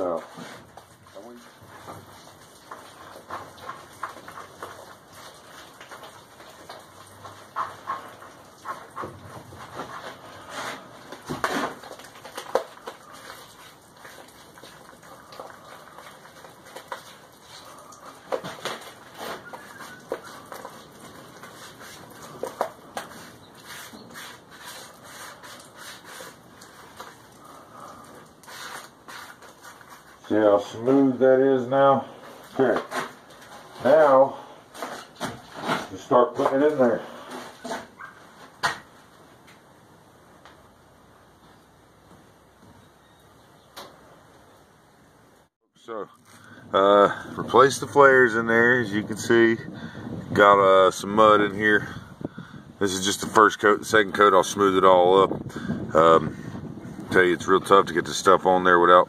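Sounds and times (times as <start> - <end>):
wet cement stirred in plastic bowl: 0.0 - 31.2
thick paste being mixed: 0.2 - 30.9.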